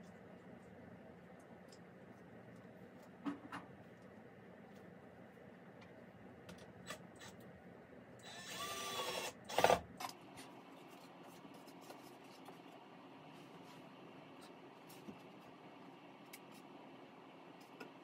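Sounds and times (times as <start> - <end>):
cordless drill into wood: 8.3 - 9.8.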